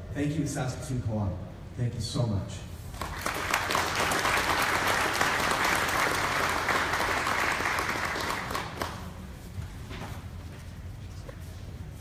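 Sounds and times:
audience applauding: 3.0 - 9.2.

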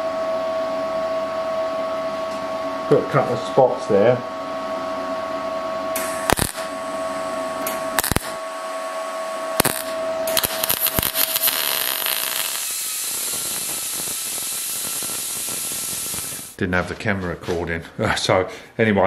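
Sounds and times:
welder crackles: 6.0 - 6.7, 7.7 - 8.4, 9.6 - 16.6
die grinder grinding: 9.6 - 16.6.

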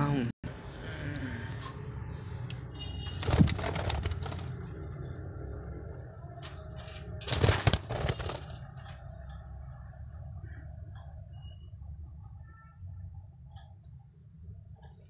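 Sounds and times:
birds flapping wings in cage: 3.0 - 5.1, 6.4 - 9.2.

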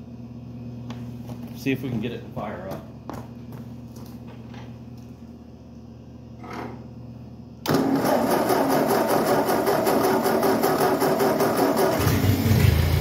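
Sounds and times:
tractor engine cranking: 7.7 - 12.6.

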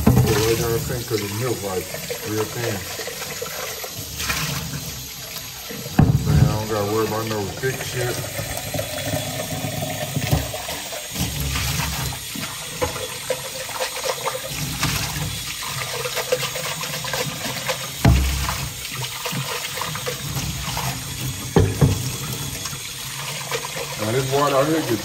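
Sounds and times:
tap running water into sink: 0.0 - 25.0
dull thumps: 6.0 - 6.7.

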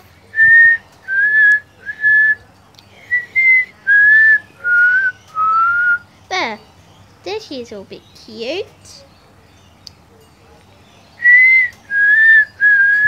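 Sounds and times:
person whistling short notes: 11.2 - 13.0.

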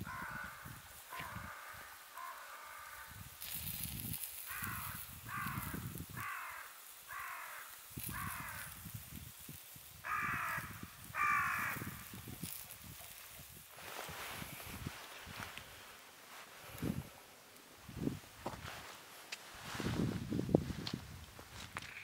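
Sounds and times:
crow cawing: 0.0 - 3.2, 4.4 - 8.8, 10.0 - 12.1.

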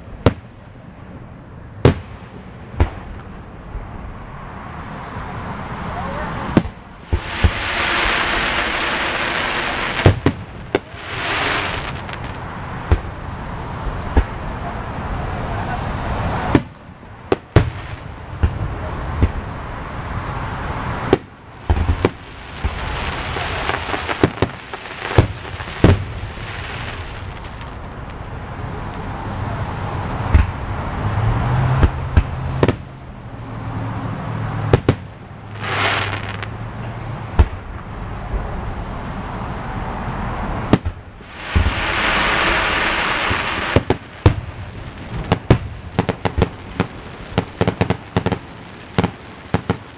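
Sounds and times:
steady rushing noise: 0.0 - 49.9
fireworks popping: 6.4 - 13.3, 14.1 - 14.5, 16.3 - 19.6, 21.0 - 29.0, 34.6 - 36.6, 40.6 - 49.9.

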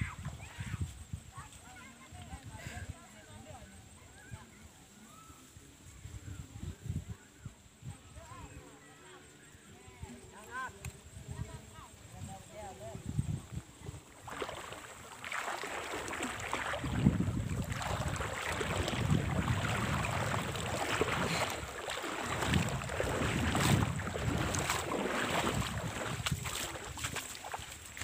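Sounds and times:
wind buffeting microphone: 10.9 - 28.0.

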